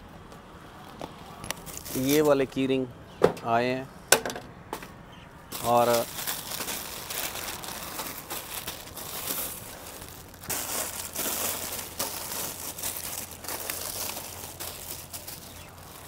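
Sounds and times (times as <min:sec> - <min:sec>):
plastic packaging crinkling: 0:01.6 - 0:02.4, 0:05.5 - 0:16.0.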